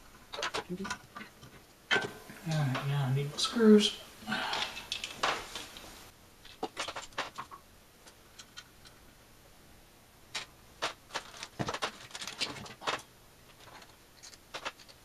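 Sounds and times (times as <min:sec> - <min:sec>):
small parts clicking and tapping: 0:00.1 - 0:03.0, 0:04.5 - 0:05.8, 0:06.4 - 0:09.0, 0:10.3 - 0:15.0.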